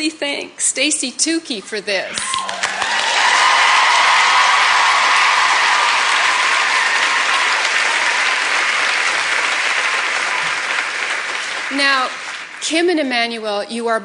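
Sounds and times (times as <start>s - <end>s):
studio audience applauding: 2.2s - 13.2s.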